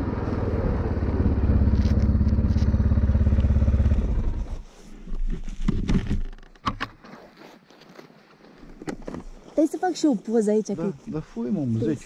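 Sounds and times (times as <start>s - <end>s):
atv engine pulsing: 0.0s - 4.6s
clatter and rustling: 5.0s - 8.0s.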